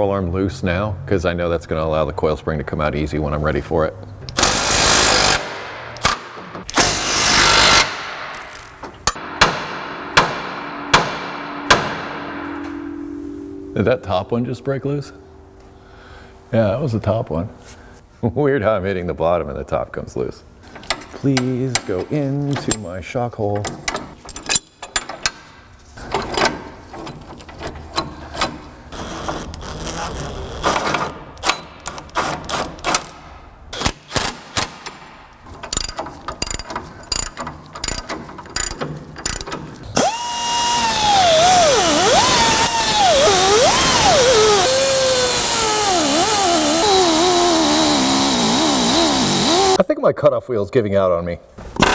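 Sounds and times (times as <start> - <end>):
impact wrench hammering: 4.4 - 13.8, 35.9 - 49.8
ringing metal-on-metal strikes: 9.1 - 15.9
metal clicks and clinks: 35.6 - 39.6
whir with high whine: 40.0 - 49.8.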